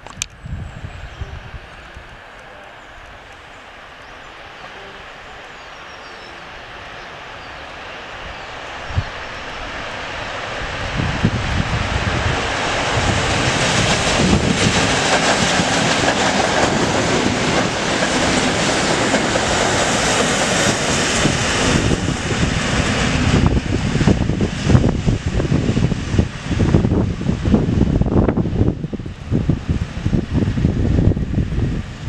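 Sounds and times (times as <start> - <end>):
train wheels rumbling on rails: 0.4 - 32.0.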